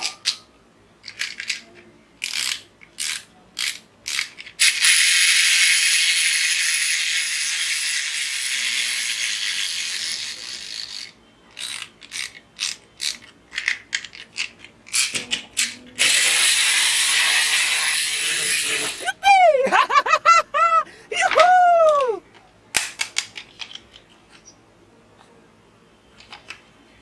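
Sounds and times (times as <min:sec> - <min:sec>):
ratcheting clicks of winding: 0:02.2 - 0:13.3
toy spring motor whirring: 0:02.2 - 0:19.2.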